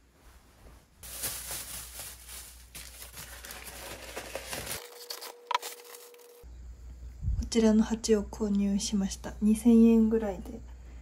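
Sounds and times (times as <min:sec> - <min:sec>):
plastic bag rustling: 0:01.0 - 0:06.4.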